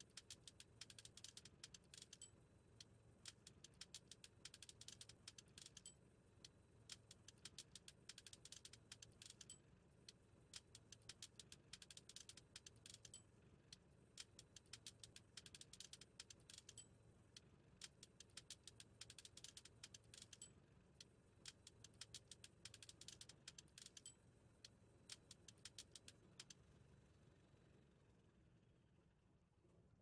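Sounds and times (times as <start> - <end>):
keyboard typing clicks: 21.5 - 24.2.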